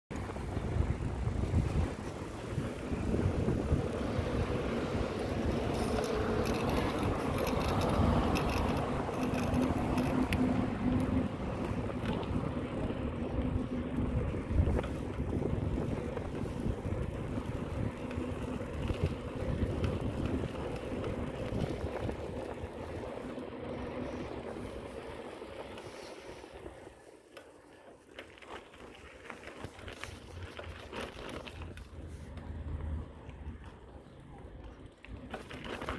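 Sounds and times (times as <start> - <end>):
wind rushing over microphone: 0.1 - 25.0
tyres rumbling on asphalt: 0.1 - 35.9.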